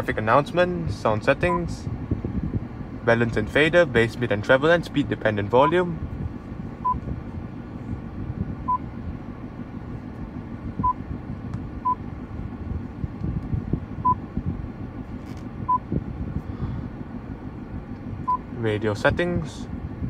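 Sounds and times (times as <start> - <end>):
low cabin hum: 0.0 - 20.0
touchscreen beeps: 10.8 - 11.0.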